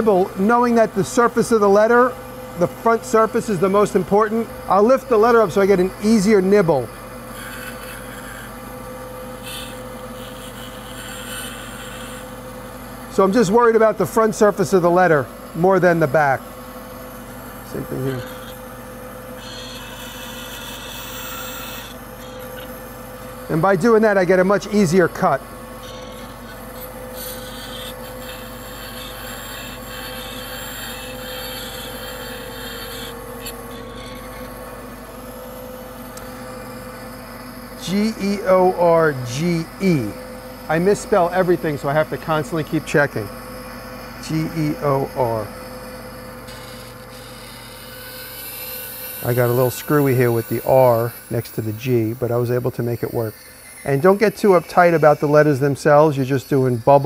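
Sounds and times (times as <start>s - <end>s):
bandsaw humming: 0.0s - 57.0s
saw blade cutting wood: 2.6s - 8.6s, 9.4s - 12.4s, 17.6s - 34.7s, 37.8s - 43.3s, 44.2s - 45.5s, 46.4s - 57.0s.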